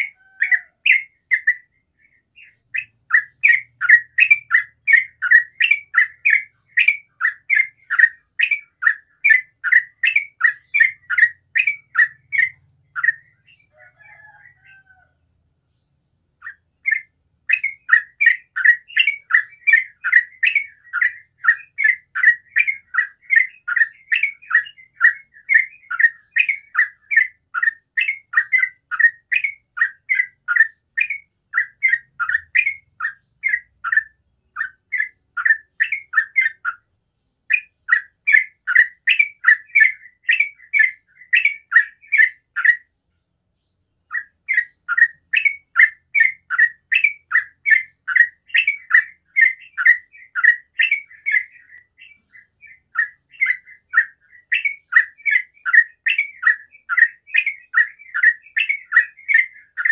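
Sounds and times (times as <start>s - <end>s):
bulbul singing chirping notes: 0.0s - 15.0s, 43.6s - 59.9s.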